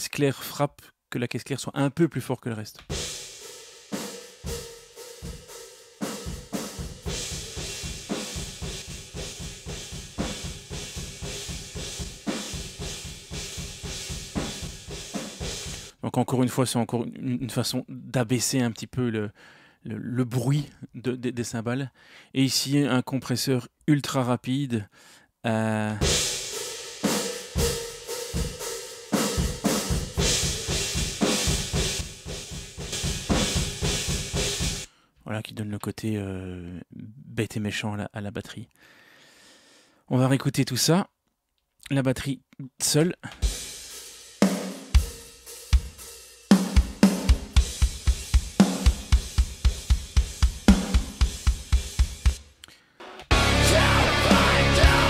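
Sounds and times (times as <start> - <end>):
rock drum kit fast beat: 2.8 - 16.0, 26.0 - 34.9, 43.3 - 55.0
bass drum strokes: 53.3 - 55.0.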